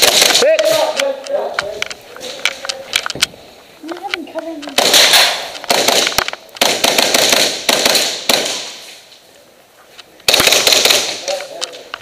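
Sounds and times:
airsoft gunfire bursts: 0.0 - 0.5, 4.8 - 8.8, 10.3 - 11.2.

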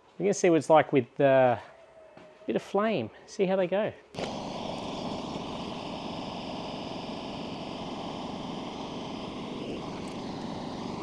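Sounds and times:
gas torch flame hissing: 4.2 - 11.0.

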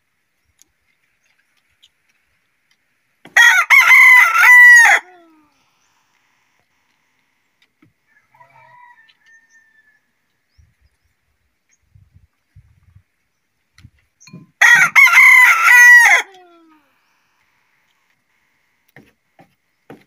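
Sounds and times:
rooster crowing: 3.4 - 5.1, 8.1 - 10.1, 14.6 - 16.3
faint rooster call: 3.4 - 5.4, 8.0 - 10.4, 14.6 - 17.0.

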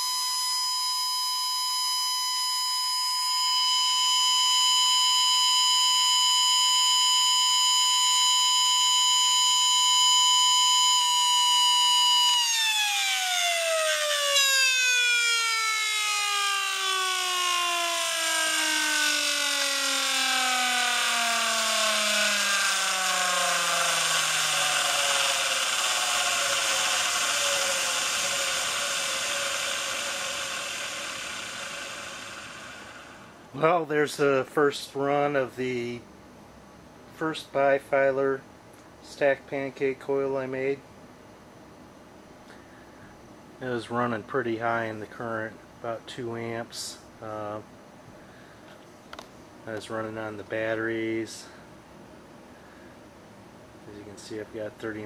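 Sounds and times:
motor high-pitched whine: 0.0 - 33.6
hiss: 21.6 - 33.4.

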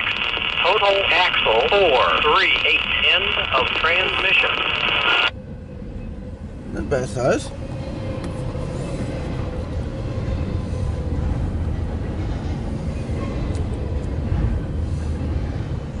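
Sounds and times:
faint steady hum: 0.0 - 6.6
train wheels rumbling on rail: 0.0 - 16.0.

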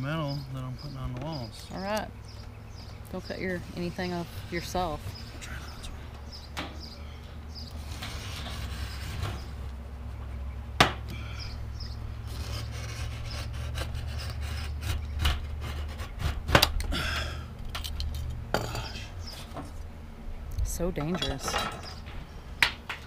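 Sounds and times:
knife scraping sheet metal: 7.8 - 9.6, 12.3 - 16.4.

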